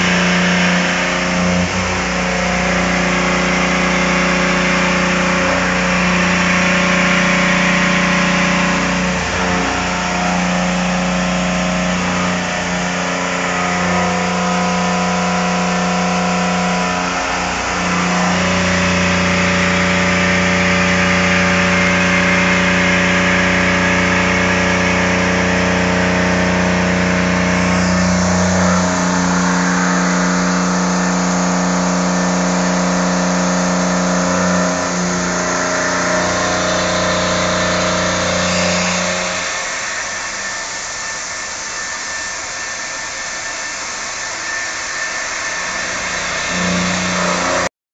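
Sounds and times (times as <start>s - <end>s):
milling machine spindle whine: 0.0s - 47.7s.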